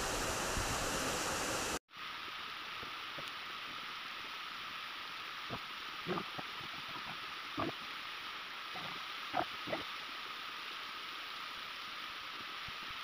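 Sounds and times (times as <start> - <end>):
waterfall pouring onto rocks: 0.0 - 13.0.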